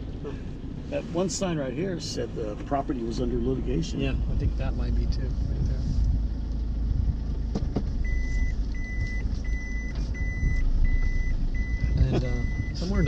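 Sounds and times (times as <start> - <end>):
car road and engine rumble: 0.0 - 13.0
electronic warning beeps: 8.0 - 13.0.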